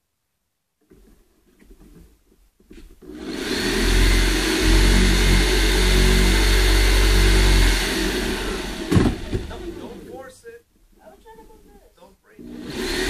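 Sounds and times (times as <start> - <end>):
electric jigsaw cutting: 3.0 - 10.1, 12.4 - 13.0.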